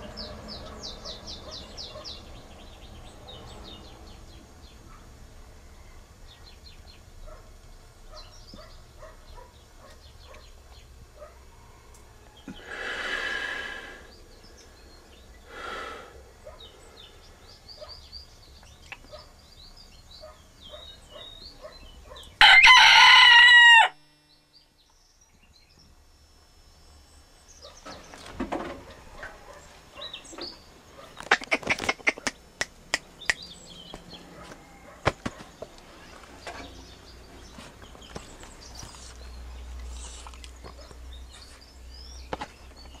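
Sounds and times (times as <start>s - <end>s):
soft bird calls: 0.0s - 22.4s, 26.9s - 43.0s
rooster crowing: 11.4s - 12.9s, 22.4s - 24.2s, 34.2s - 35.2s
sharp clicks and scuffs: 31.2s - 36.7s, 42.3s - 43.0s.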